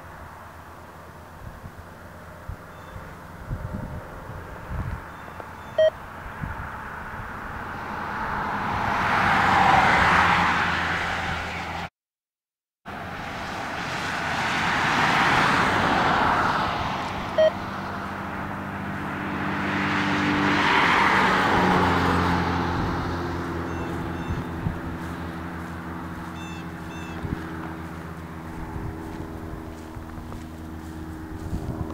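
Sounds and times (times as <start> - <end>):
highway traffic passing: 0.0 - 11.9, 12.9 - 31.9
short beep: 5.1 - 6.0, 17.4 - 17.6, 26.4 - 27.2.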